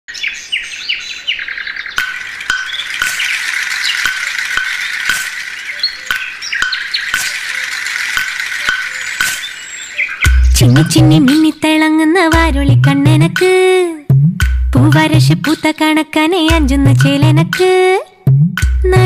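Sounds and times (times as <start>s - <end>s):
recorded birdsong chirping: 0.1s - 11.8s
steady clicking: 2.0s - 9.6s.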